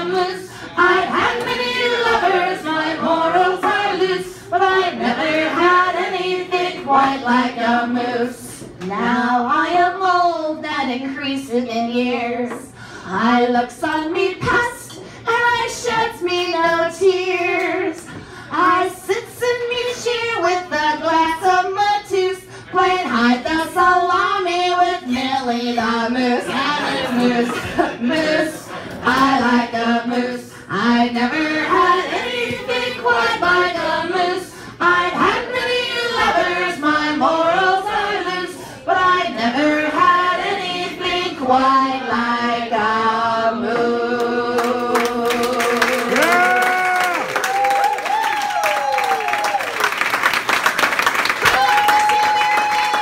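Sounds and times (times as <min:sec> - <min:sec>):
women singing folk song: 0:00.0 - 0:46.5
audience clapping: 0:44.6 - 0:53.0.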